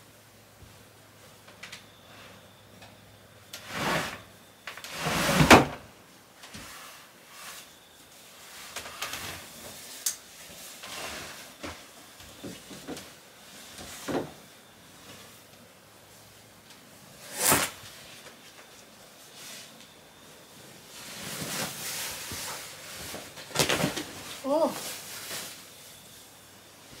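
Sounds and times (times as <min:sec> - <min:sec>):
sliding closet door rasping: 0:03.6 - 0:05.8
bedding rustling: 0:06.5 - 0:27.0.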